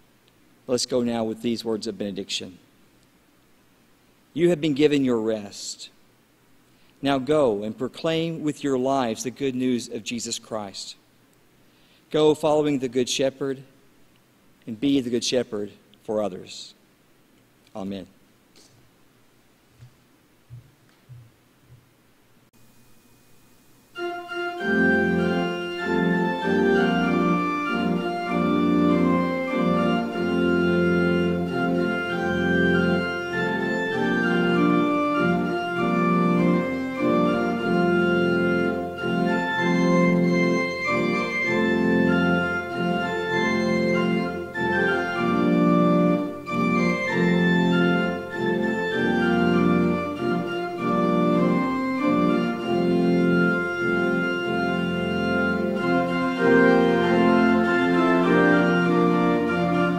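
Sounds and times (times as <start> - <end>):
pipe organ chords: 24.0 - 59.9.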